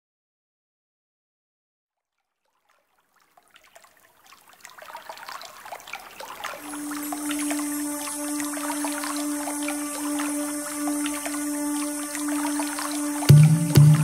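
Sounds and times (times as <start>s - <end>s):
water trickling and dripping: 2.0s - 14.0s
low droning tone: 6.7s - 14.0s.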